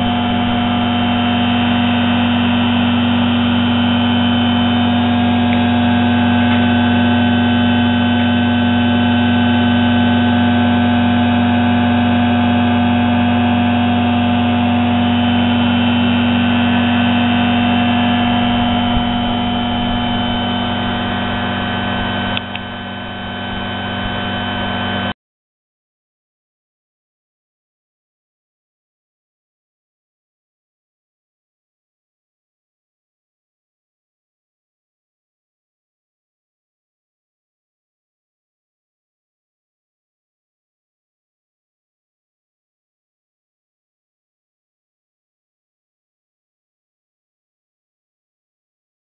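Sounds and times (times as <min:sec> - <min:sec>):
loud electrical hum: 0:00.0 - 0:25.2
click: 0:22.3 - 0:22.7.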